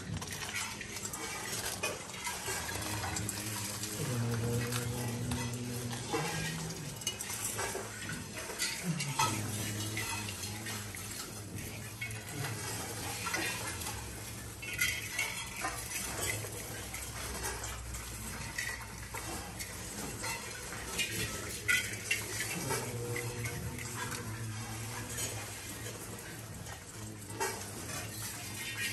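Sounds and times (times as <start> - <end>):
grain pattering on metal plates: 0.0 - 28.9
low voice droning notes: 2.5 - 13.4, 20.9 - 26.3.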